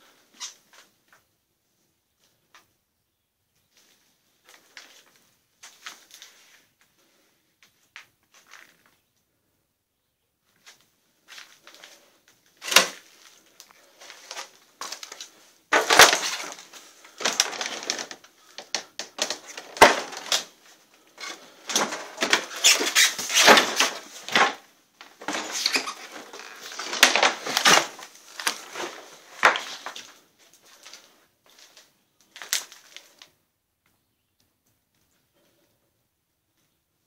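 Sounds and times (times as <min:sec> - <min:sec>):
crunching and rustling debris: 0:03.7 - 0:09.1, 0:10.5 - 0:33.4.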